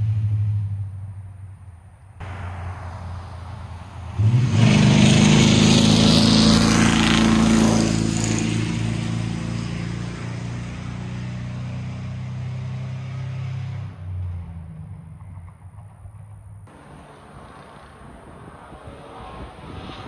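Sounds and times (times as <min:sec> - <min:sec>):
truck exhaust driving past: 0:00.0 - 0:20.0.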